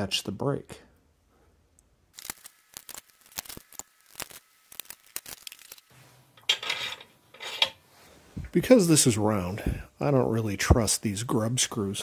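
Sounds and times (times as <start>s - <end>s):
metal parts and tools clicking: 6.4s - 7.8s.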